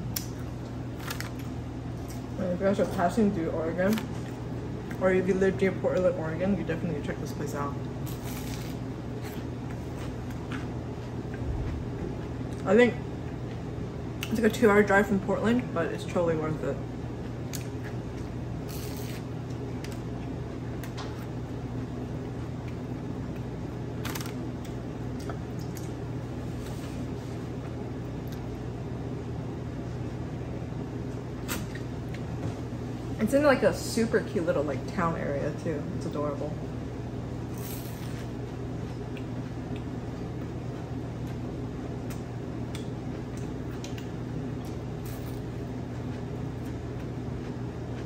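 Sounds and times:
low room hum: 0:00.0 - 0:48.0
eating clicks and crackle: 0:37.6 - 0:48.0.

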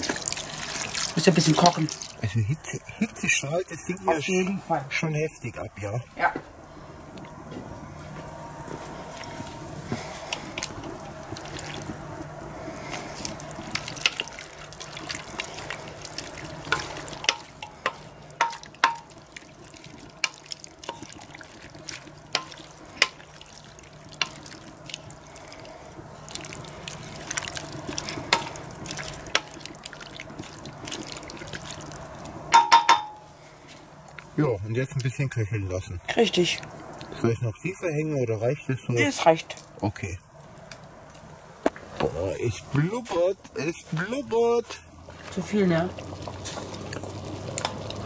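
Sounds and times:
wood fire crackling and popping: 0:08.6 - 0:33.0, 0:39.1 - 0:48.0.

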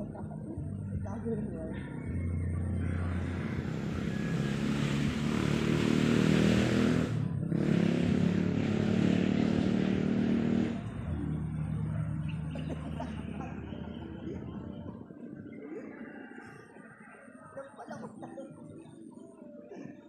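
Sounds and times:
vehicle engine running: 0:00.0 - 0:15.0.

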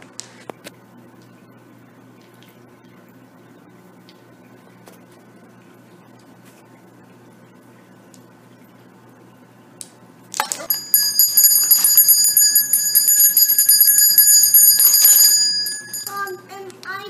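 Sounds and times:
handbell jangling: 0:10.6 - 0:16.4.

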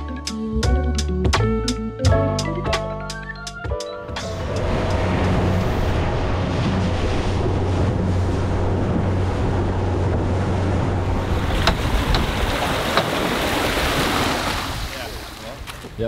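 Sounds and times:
water washing around boat: 0:04.1 - 0:16.0
wind buffeting microphone: 0:04.1 - 0:16.0.

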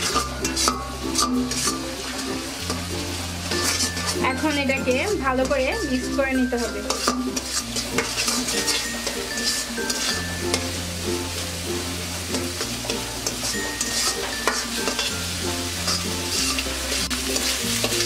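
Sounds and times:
food sizzling in a pan: 0:00.0 - 0:18.0
spatula scraping a pan: 0:00.0 - 0:18.0
background music with bass: 0:07.4 - 0:14.0.

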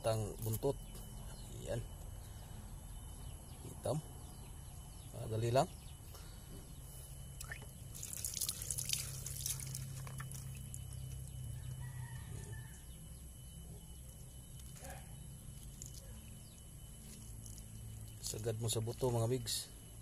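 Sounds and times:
rooster crowing: 0:11.5 - 0:13.1.

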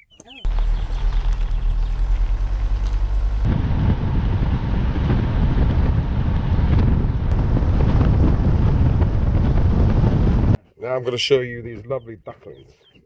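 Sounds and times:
car road noise: 0:00.4 - 0:10.6
wind rumbling on microphone: 0:00.4 - 0:10.6.

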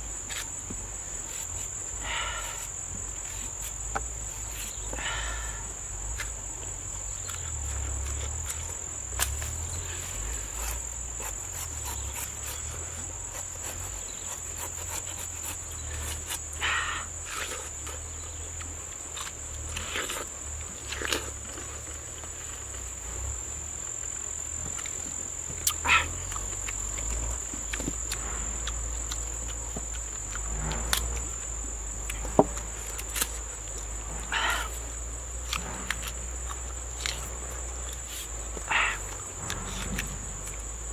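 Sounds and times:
high-pitched insect chorus: 0:00.0 - 0:40.9
machete cutting banana: 0:07.2 - 0:09.8, 0:10.4 - 0:21.6.

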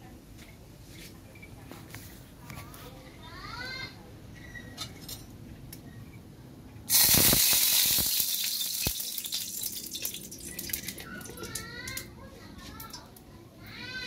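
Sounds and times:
hot oil sizzling and spattering: 0:06.9 - 0:11.6
wood fire crackles: 0:06.9 - 0:12.1.

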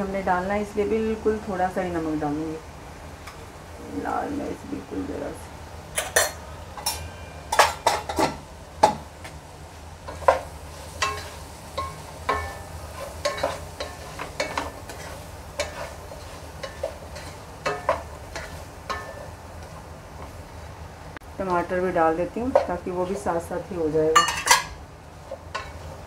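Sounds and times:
faint sizzle: 0:00.0 - 0:26.0
spoon clinking and scraping pan: 0:06.0 - 0:09.0, 0:10.1 - 0:19.4, 0:24.1 - 0:24.8, 0:25.5 - 0:25.8.

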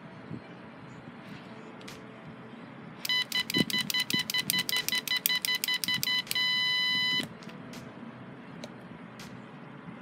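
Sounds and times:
piezo buzzer beeping: 0:03.0 - 0:07.3.

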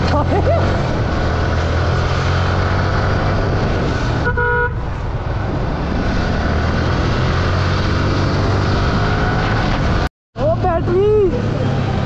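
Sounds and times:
wind noise: 0:00.0 - 0:10.1
horn toot: 0:04.2 - 0:04.8.

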